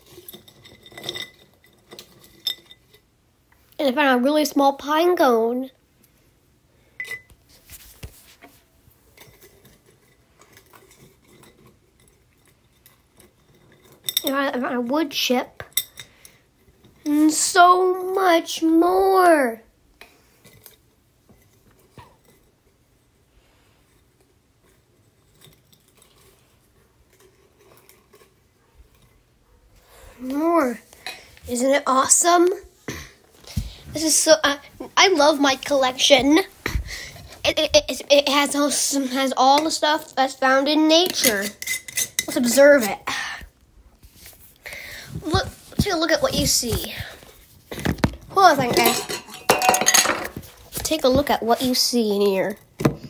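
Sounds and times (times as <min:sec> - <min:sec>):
faint handling clicks and rustles: 0:06.0 - 0:14.6, 0:20.0 - 0:31.8.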